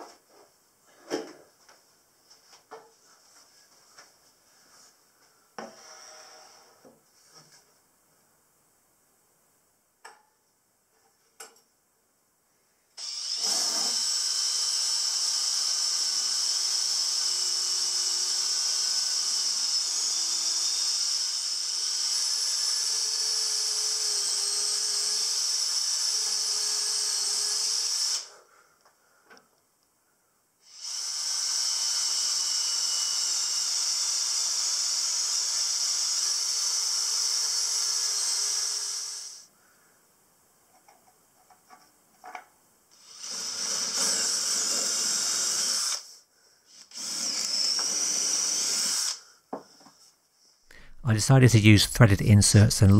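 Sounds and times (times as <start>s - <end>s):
cordless drill boring into wood: 13.0s - 28.3s, 30.6s - 39.5s, 43.0s - 49.2s.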